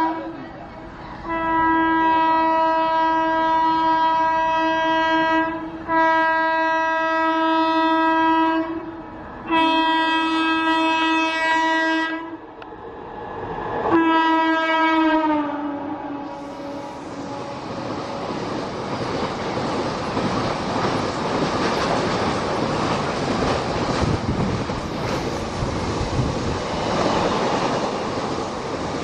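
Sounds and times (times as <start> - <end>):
locomotive horn blasts: 1.2 - 12.4, 13.9 - 18.2
train rumble: 5.4 - 29.0.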